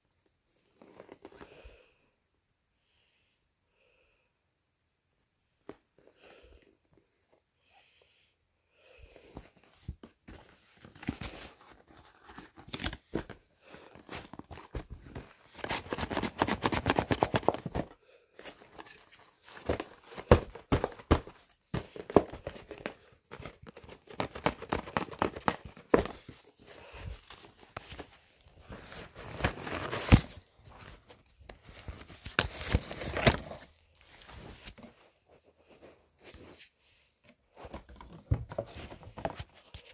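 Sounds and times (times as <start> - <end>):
packaging rustling and crinkling: 9.8 - 35.0.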